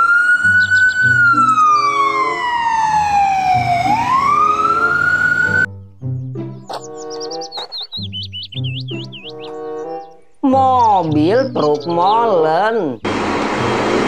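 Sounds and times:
ambulance siren wailing: 0.0 - 5.7
background music: 0.0 - 14.0.

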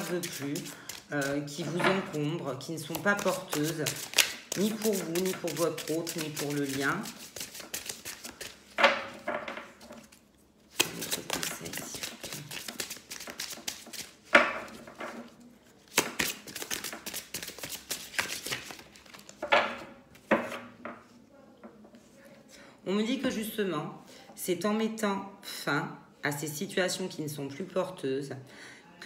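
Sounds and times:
cards being shuffled: 0.0 - 8.8, 9.9 - 15.1, 15.8 - 19.5
card slaps: 2.9 - 5.1, 15.9 - 18.8.

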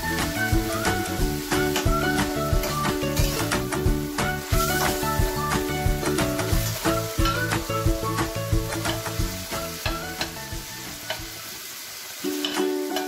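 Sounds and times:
soft background music: 0.0 - 11.4
chicken sizzling in a frying pan: 0.0 - 13.0
spatula scraping a pan: 2.6 - 3.6.

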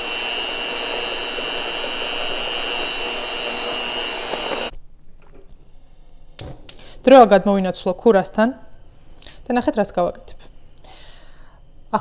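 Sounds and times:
electric hand mixer whining: 0.0 - 4.7.

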